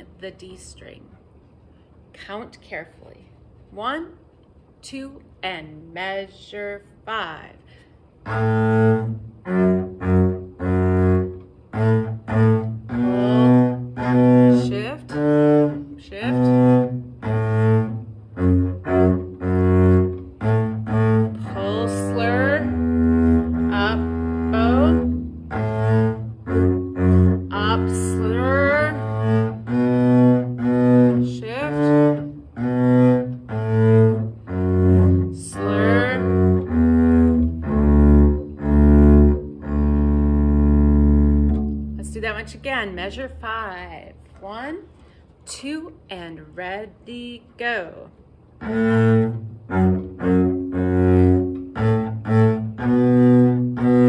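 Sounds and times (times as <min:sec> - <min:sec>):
bowed double bass: 0:04.9 - 0:54.0.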